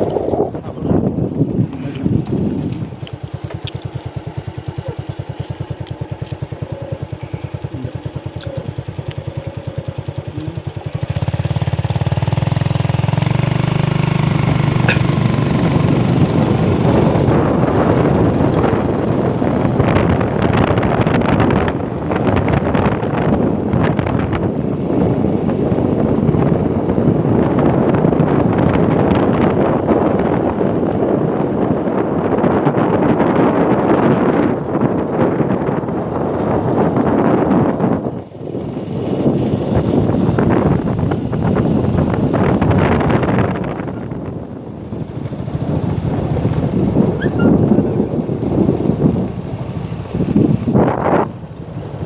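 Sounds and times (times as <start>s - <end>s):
motorcycle engine running: 0.0s - 52.0s
wind rushing over microphone: 0.0s - 52.0s.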